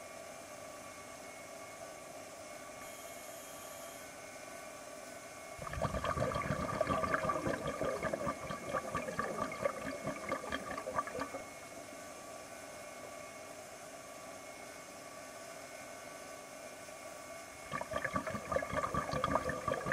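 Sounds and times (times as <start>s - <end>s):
air bubbling underwater: 5.6s - 11.5s, 17.7s - 19.9s.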